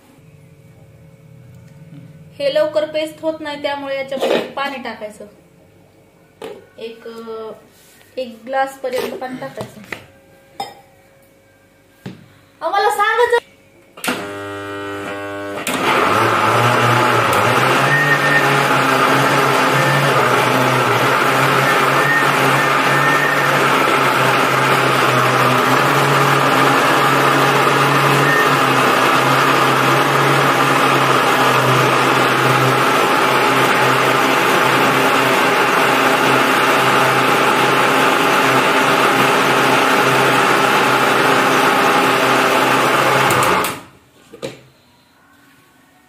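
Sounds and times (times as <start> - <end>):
mixer grinder motor running: 14.0 - 43.8.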